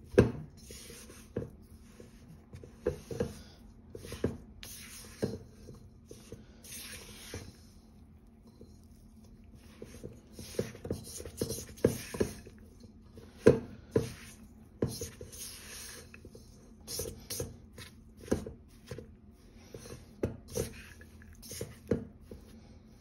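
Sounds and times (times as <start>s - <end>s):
spatula scraping metal bowl: 9.7s - 19.0s.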